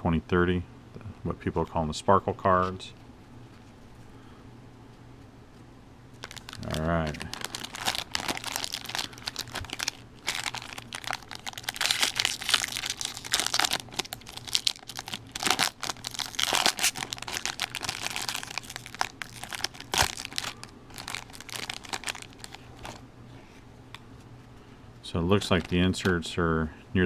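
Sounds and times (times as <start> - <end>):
foil wrapper crinkling: 6.2 - 23.0, 25.3 - 26.0.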